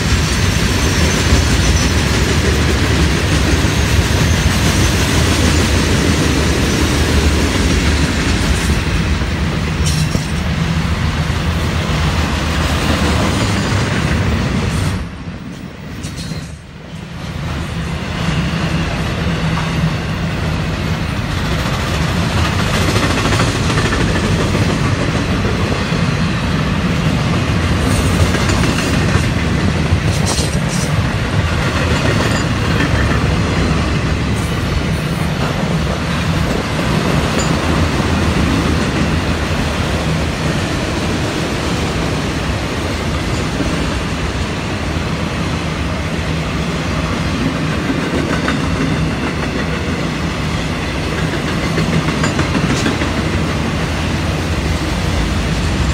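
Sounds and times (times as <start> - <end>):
freight train wheels rumbling: 0.0 - 55.9.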